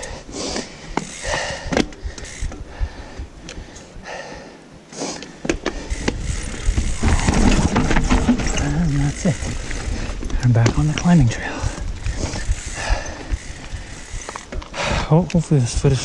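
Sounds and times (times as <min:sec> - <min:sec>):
mountain bike rattling and knocking: 0:00.0 - 0:02.9, 0:05.4 - 0:15.8
bike tyres rumbling on trail: 0:00.0 - 0:04.4, 0:05.3 - 0:16.0
sharp clicks from bike: 0:05.2 - 0:15.4.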